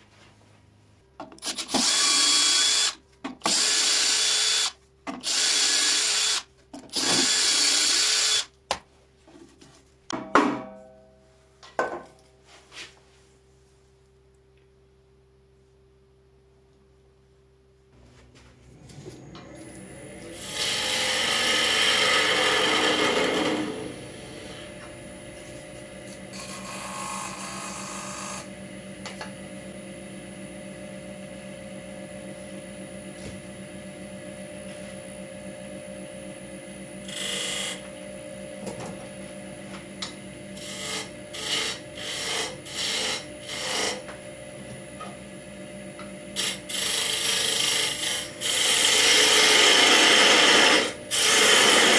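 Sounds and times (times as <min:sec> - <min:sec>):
turning tool cutting wood: 0:01.4 - 0:08.5, 0:19.7 - 0:24.7, 0:26.1 - 0:28.5, 0:37.0 - 0:37.9, 0:40.6 - 0:44.2, 0:46.3 - 0:51.9
lathe motor hum: 0:18.7 - 0:51.9.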